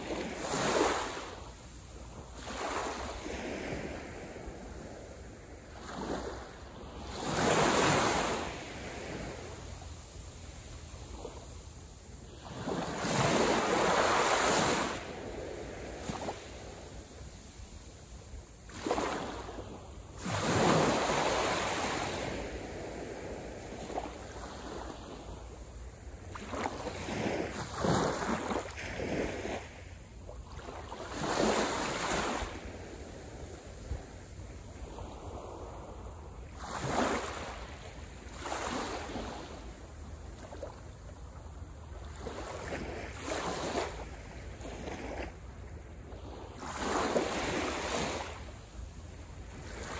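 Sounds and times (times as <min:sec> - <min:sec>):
low steady hiss: 0:00.0 - 0:49.9
small waves washing up beach: 0:00.0 - 0:49.9.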